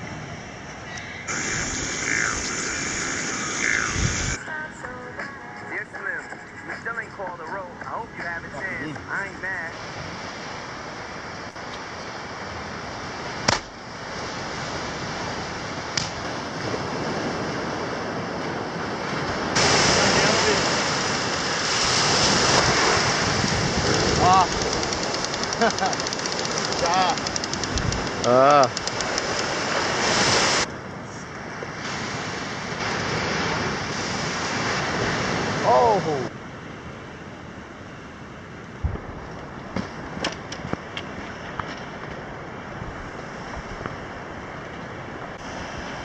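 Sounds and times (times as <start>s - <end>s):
ocean surf: 0.0s - 46.0s
wind buffeting microphone: 3.6s - 4.4s, 16.3s - 25.5s, 26.3s - 30.4s, 38.8s - 46.0s
sharp click: 23.4s - 29.5s.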